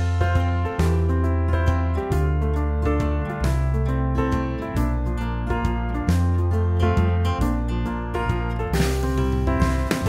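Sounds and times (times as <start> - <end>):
soft instrumental music: 0.0 - 10.0.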